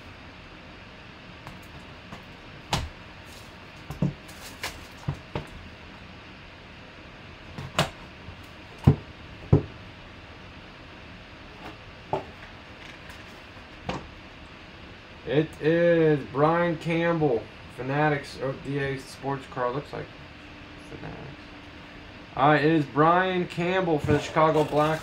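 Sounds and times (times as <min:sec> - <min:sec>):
knocks and taps on cardboard: 0:08.8 - 0:09.7.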